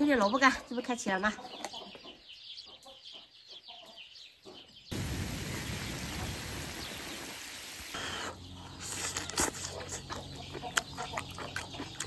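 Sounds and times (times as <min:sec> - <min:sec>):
chickens clucking: 0:00.0 - 0:04.9, 0:07.9 - 0:12.0
small birds chirping: 0:00.0 - 0:12.0
steady hiss: 0:04.9 - 0:08.4.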